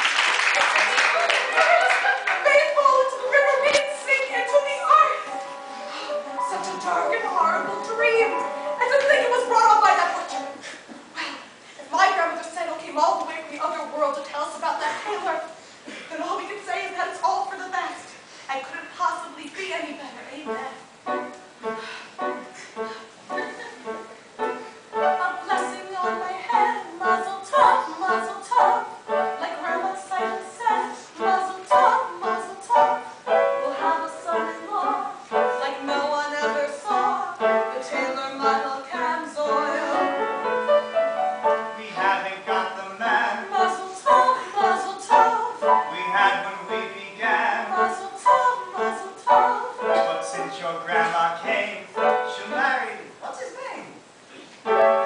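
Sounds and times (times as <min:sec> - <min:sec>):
piano chords: 0:01.2 - 0:10.8, 0:20.4 - 0:53.0, 0:54.6 - 0:55.0
people singing: 0:23.3 - 0:40.6, 0:41.4 - 0:52.4.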